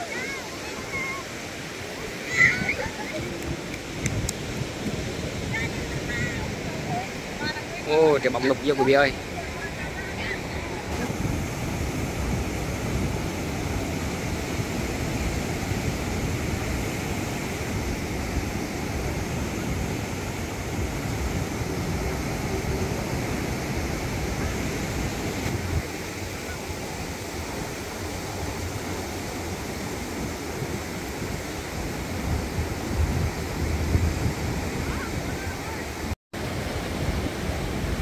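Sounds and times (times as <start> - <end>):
surf breaking on a beach: 0.0 - 38.0.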